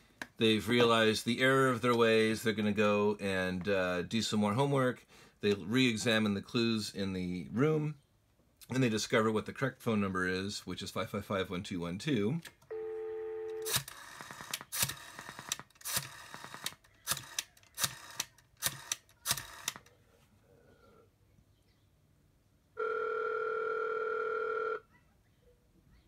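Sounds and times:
two-tone ringback tone: 12.7s - 13.7s
telephone dial tone: 12.7s - 19.8s, 22.8s - 24.8s
rotary dial pulse clicks: 13.6s - 19.9s.

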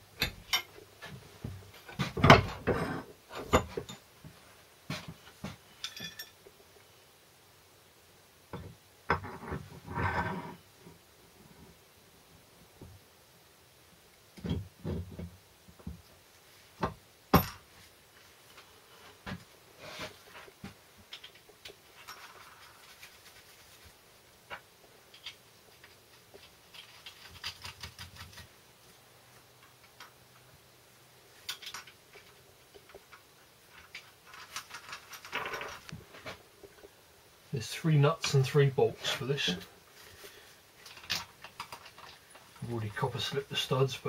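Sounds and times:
metal parts clicking and knocking: 31.4s - 35.9s, 40.8s - 42.6s.

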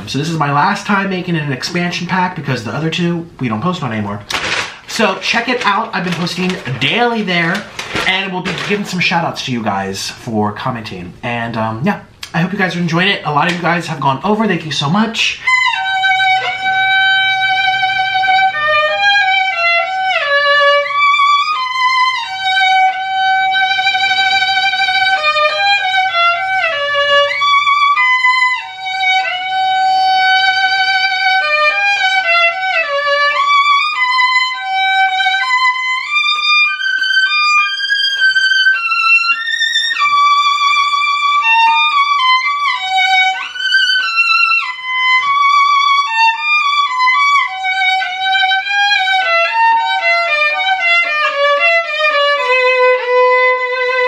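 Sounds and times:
solo violin melody: 4.5s - 9.1s, 13.4s - 54.0s.

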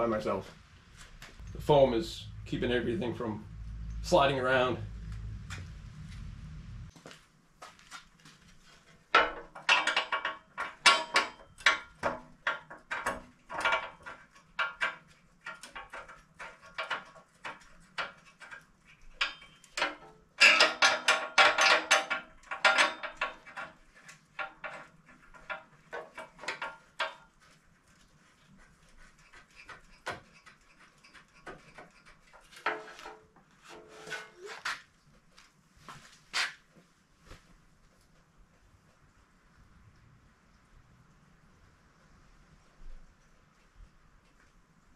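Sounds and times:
steel bumper clattering and knocking: 9.1s - 18.6s, 19.2s - 27.3s.

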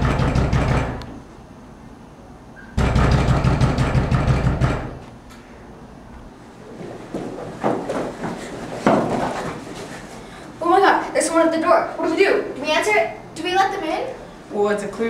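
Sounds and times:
knocking on glass door: 0.0s - 1.0s, 2.8s - 5.0s.

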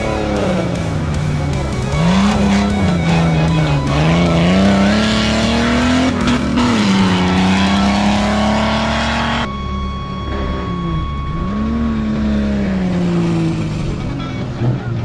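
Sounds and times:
off-road vehicle engine revving: 0.0s - 15.0s
thin high tone: 6.9s - 14.4s.

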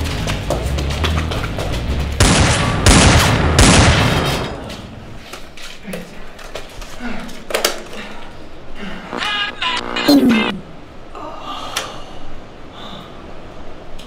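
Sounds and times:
gunfire bursts: 2.2s - 4.5s.

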